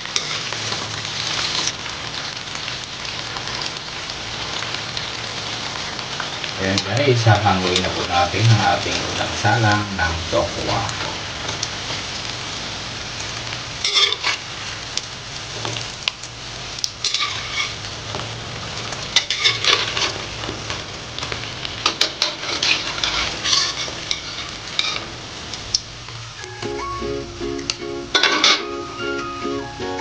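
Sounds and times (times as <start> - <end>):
tofu sizzling in hot oil: 0.0 - 26.5
spatula scraping and clinking on wok: 13.8 - 14.4, 17.0 - 17.8, 19.2 - 20.2, 21.8 - 25.1.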